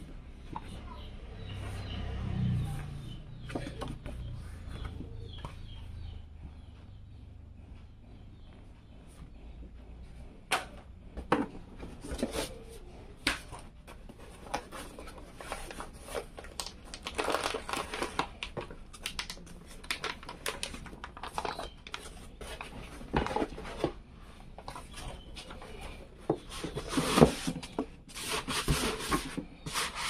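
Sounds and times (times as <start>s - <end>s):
plastic bag crinkling: 16.4s - 22.1s.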